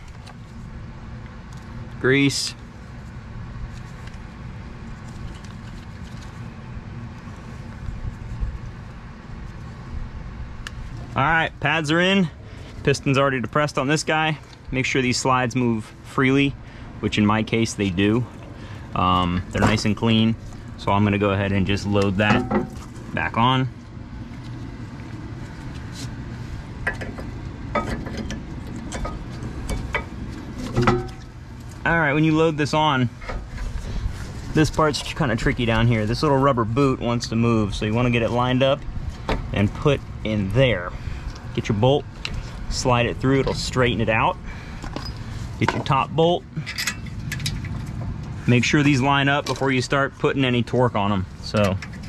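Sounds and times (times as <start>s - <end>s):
steady low hum: 0.0s - 52.0s
steady low rumble: 0.0s - 52.0s
metal clinks and knocks: 22.2s - 22.9s, 26.8s - 31.3s.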